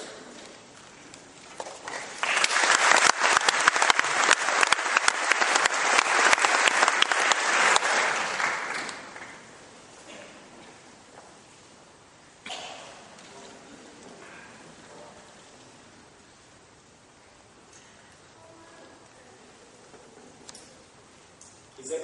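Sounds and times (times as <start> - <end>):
large audience applauding: 1.6 - 9.6.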